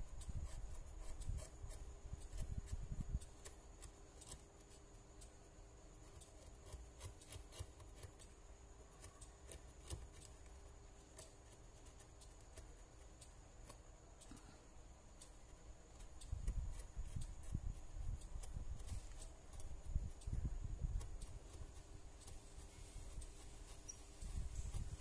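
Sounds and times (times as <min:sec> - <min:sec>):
knife scraping wooden stick: 0:20.9 - 0:25.0.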